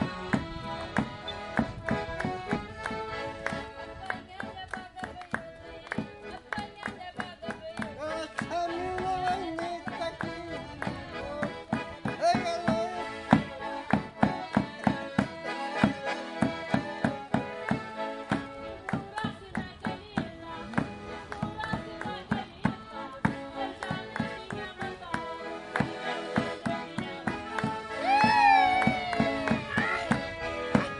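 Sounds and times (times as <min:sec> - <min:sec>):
accordions playing folk tune: 0:00.0 - 0:30.9.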